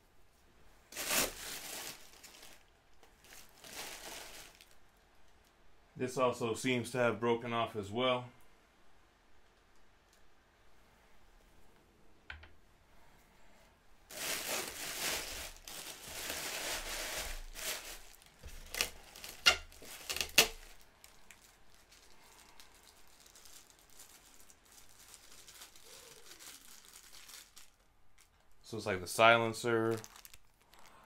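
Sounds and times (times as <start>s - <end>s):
packaging crinkling: 0.9s - 4.8s, 14.1s - 28.4s, 29.6s - 31.0s
sharp crackles: 14.1s - 27.8s.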